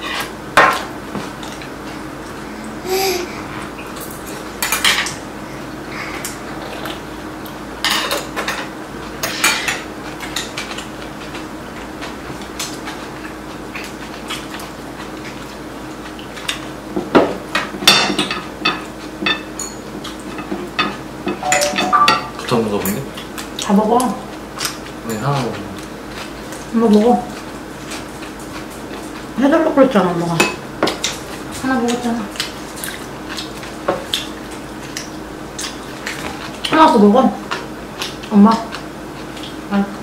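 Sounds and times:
chopsticks clinking on ceramic bowls: 17.9s - 23.0s.

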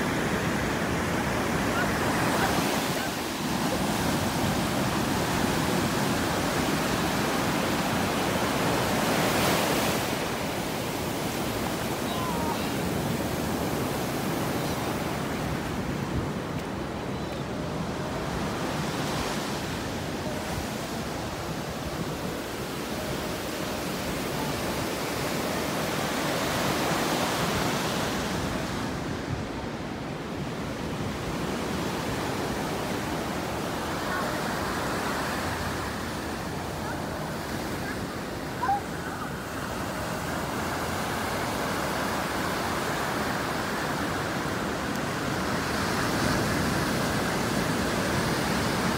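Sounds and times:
ocean surf breaking: 0.0s - 48.9s.

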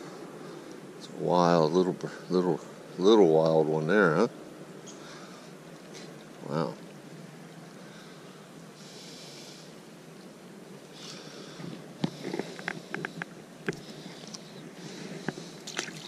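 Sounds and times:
creek water running: 10.8s - 16.0s.

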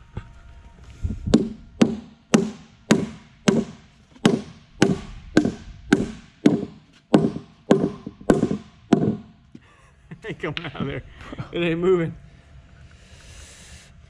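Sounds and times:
rubber mallet knocking plastic mold: 1.3s - 9.3s.

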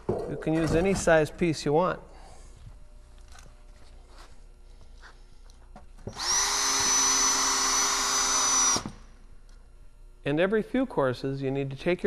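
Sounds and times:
cordless drill driving a screw: 6.1s - 9.0s.

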